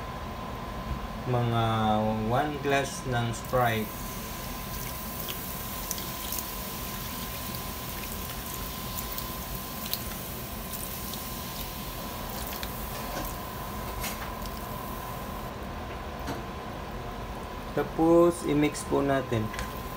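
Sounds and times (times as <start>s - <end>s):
soda pouring and splashing: 3.8s - 15.4s.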